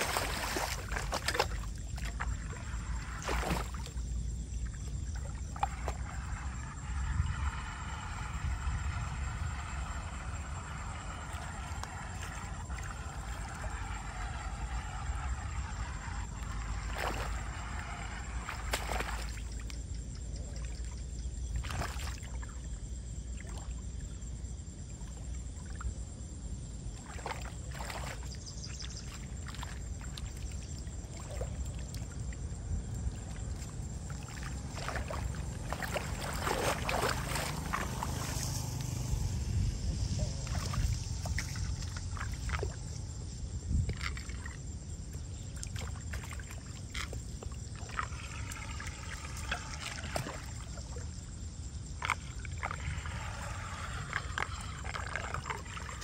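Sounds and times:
low rumble: 32.0 - 44.9
hands splashing in shallow water: 33.6 - 38.7.

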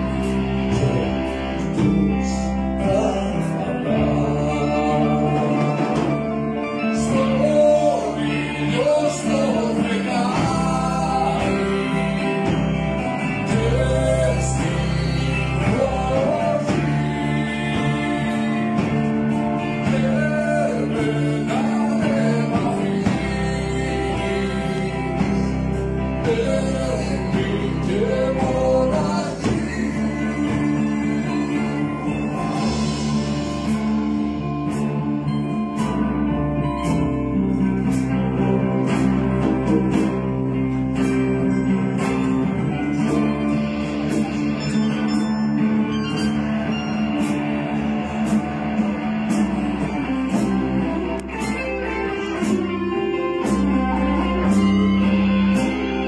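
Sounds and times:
man singing into a microphone: 0.0 - 33.1
drum kit: 0.0 - 56.0
electric guitars: 0.0 - 56.0.

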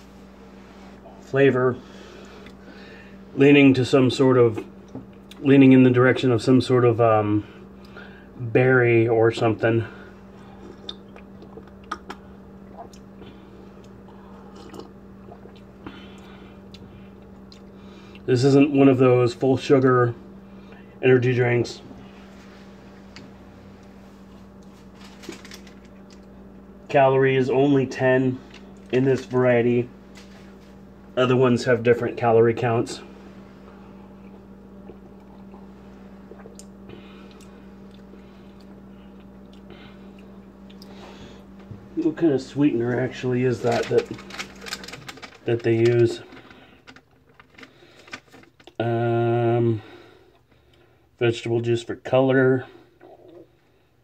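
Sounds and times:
steady low hum: 0.0 - 54.0
person sipping and swallowing: 10.4 - 18.2, 34.2 - 41.1
mouth clicks: 10.8 - 13.0.

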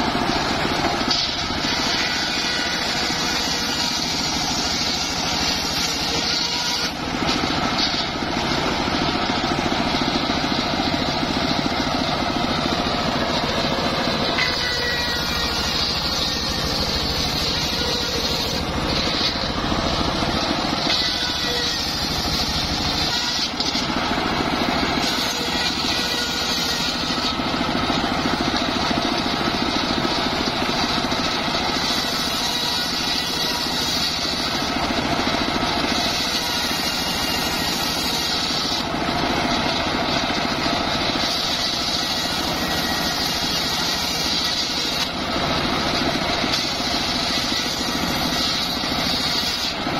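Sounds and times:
circular saw cutting wood: 0.0 - 49.9
engine droning: 5.6 - 30.7.

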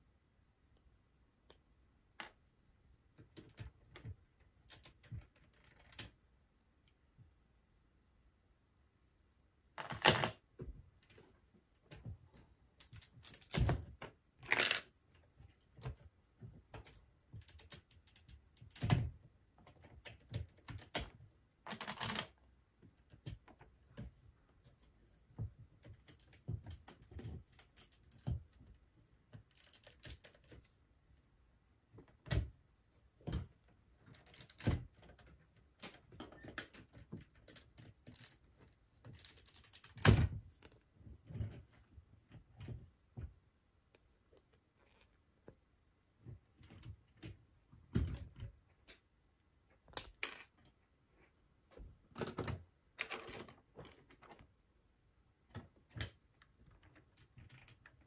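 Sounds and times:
plastic bricks clicking together: 39.1 - 40.8, 49.9 - 50.6.

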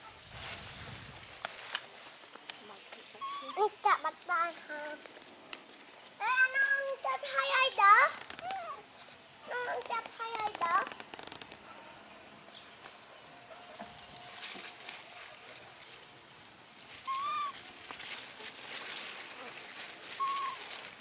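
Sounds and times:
leaves rustling: 0.0 - 21.0
monkey coo calls: 17.0 - 17.7, 20.2 - 20.8.

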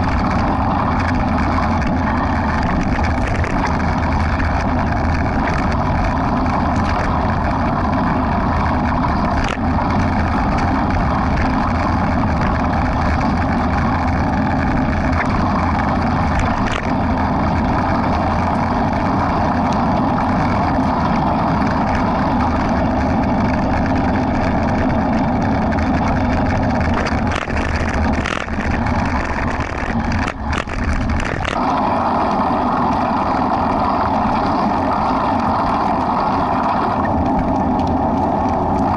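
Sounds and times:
wind noise on microphone: 0.0 - 38.9
clicks: 23.5 - 31.7.

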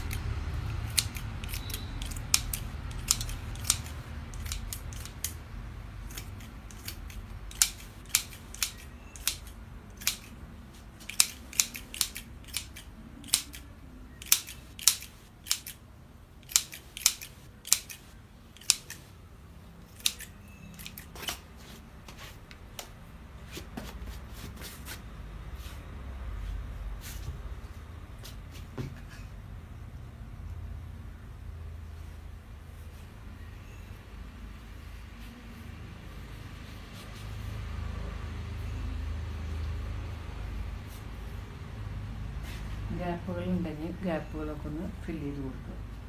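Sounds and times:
scissors snipping foliage: 0.0 - 5.4, 6.0 - 10.4, 11.0 - 15.8.

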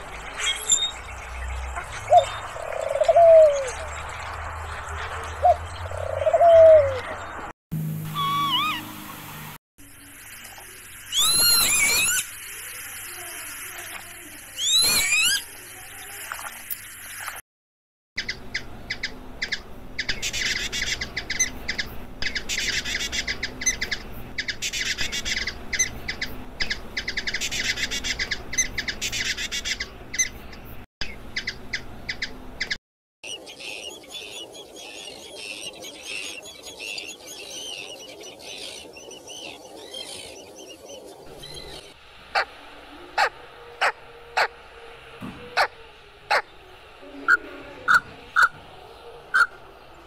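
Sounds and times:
high chirping bird calls: 0.0 - 7.4, 8.0 - 9.1, 10.0 - 17.4, 31.0 - 50.0
lapwing call: 8.0 - 9.0, 42.3 - 46.5, 47.1 - 48.6, 49.3 - 49.6.

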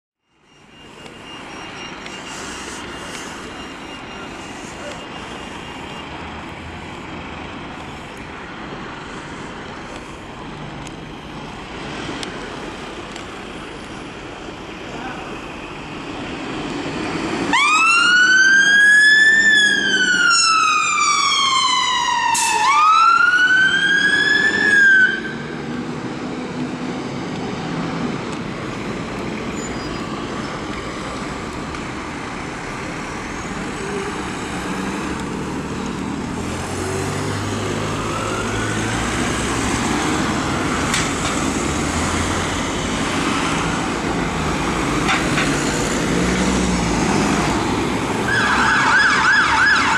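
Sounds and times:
street traffic noise: 0.2 - 49.9
fire engine siren wailing: 17.4 - 26.6, 36.7 - 40.9, 46.0 - 49.9
distant siren wail: 17.5 - 25.8, 36.8 - 40.9, 48.0 - 49.9.

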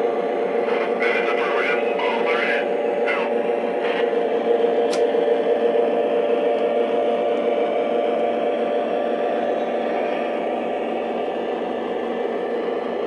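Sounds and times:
model locomotive running on track: 0.0 - 13.0.

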